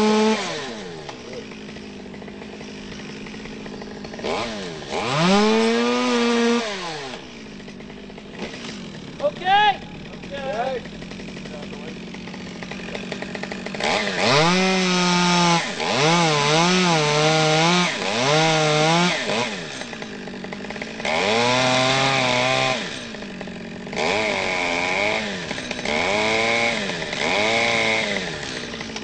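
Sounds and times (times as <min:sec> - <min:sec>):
chainsaw cutting wood: 0:00.0 - 0:29.0.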